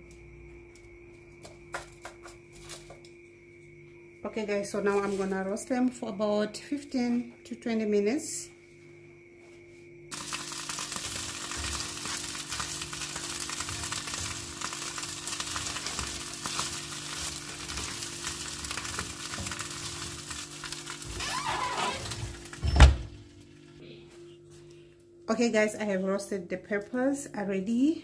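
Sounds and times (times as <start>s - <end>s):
oven low hum: 10.0s - 28.0s
vegetables sizzling in oil: 10.1s - 22.6s
oven door thumping shut: 22.1s - 23.1s.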